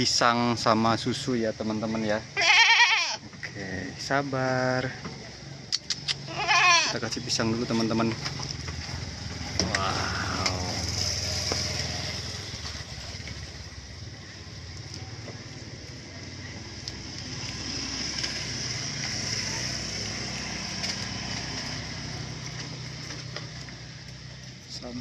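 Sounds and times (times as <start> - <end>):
motor engine running: 8.0 - 24.9.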